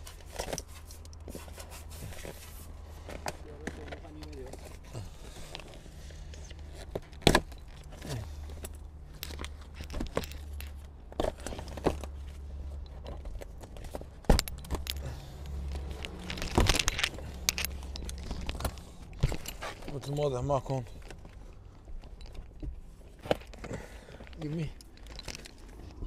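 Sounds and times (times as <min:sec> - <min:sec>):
tools and parts knocking: 0:06.9 - 0:12.1, 0:12.7 - 0:20.3.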